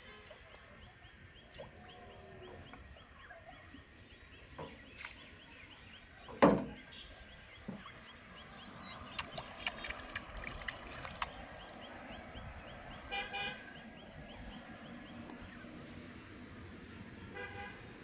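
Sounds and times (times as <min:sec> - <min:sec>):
birds calling: 0:00.0 - 0:16.0
river ambience: 0:00.0 - 0:18.0
small sharp water splashes: 0:04.9 - 0:05.3, 0:08.8 - 0:12.0.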